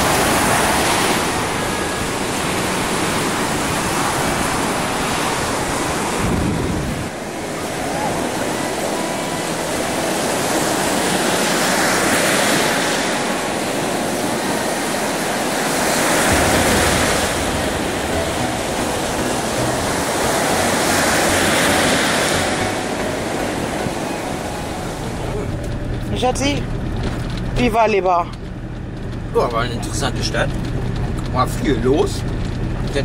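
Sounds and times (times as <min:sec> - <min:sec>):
surf breaking on a beach: 0:00.0 - 0:25.8.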